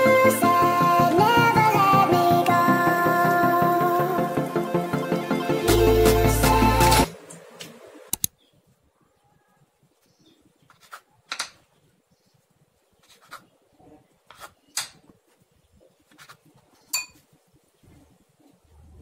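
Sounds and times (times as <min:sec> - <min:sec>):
background music: 0:00.0 - 0:07.3
knife cutting bread on board: 0:10.7 - 0:11.0, 0:13.0 - 0:13.5, 0:14.3 - 0:14.6, 0:16.1 - 0:16.4.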